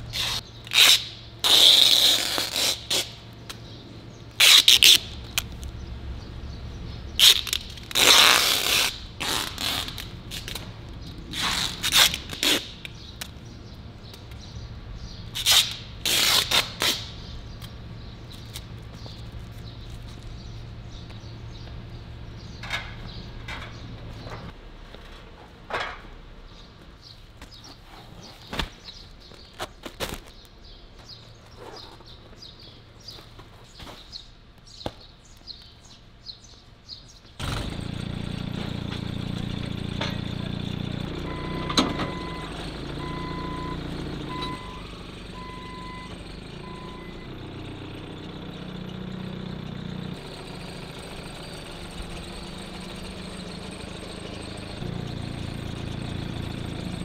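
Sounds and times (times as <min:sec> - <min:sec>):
forklift engine running: 0:02.6 - 0:24.6, 0:37.4 - 0:57.0
warning beeper beeps: 0:41.2 - 0:47.3.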